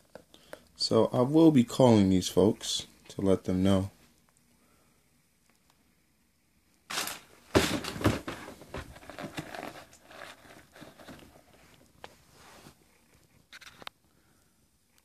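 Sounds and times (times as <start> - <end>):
tissue paper rustling: 6.9 - 12.8.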